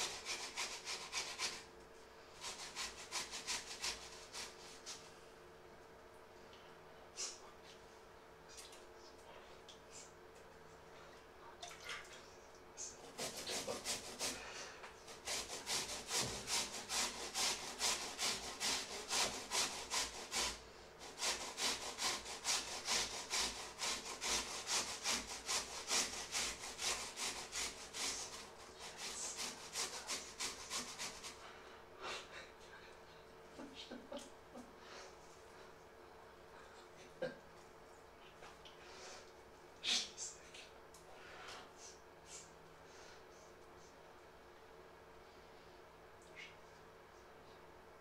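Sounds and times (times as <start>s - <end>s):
potatoes scraping on a grater: 0.0s - 1.7s, 2.4s - 4.9s, 13.0s - 31.4s.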